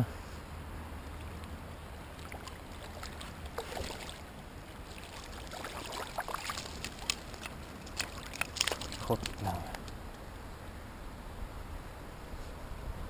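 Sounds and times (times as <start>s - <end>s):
fish splashing in water: 2.0s - 9.8s.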